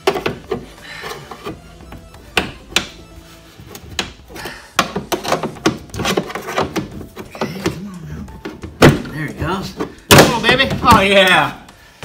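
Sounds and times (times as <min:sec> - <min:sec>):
background music: 0:00.0 - 0:12.0
metal linkage knocking and scraping: 0:04.8 - 0:07.7.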